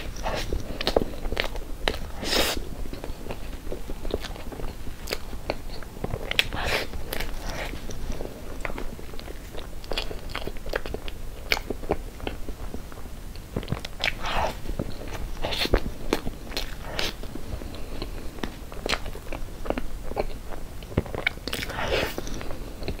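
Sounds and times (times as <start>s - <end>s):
wet chewing and mouth sounds: 0.0s - 23.0s.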